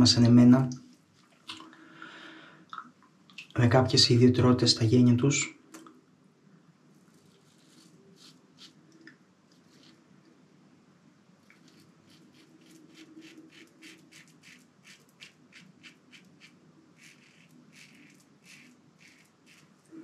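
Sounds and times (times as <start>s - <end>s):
razor scraping beard stubble: 7.1s - 8.8s, 9.6s - 10.0s, 11.4s - 20.0s.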